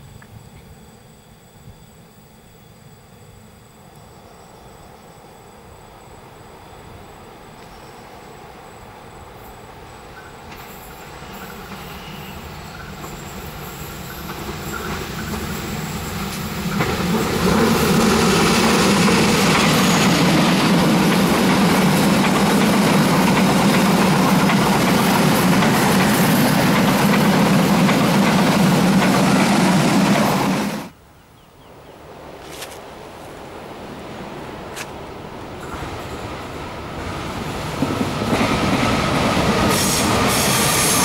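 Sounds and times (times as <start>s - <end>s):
diesel locomotive engine: 0.0s - 31.0s, 32.2s - 41.0s
train wheels clattering on rails: 10.1s - 30.9s, 35.6s - 41.0s.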